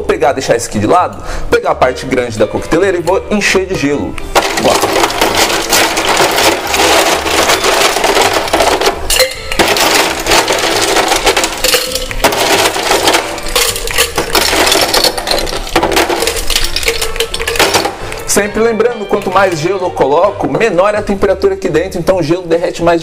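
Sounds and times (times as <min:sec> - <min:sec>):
ice cubes clattering into metal tin: 0:04.4 - 0:18.4.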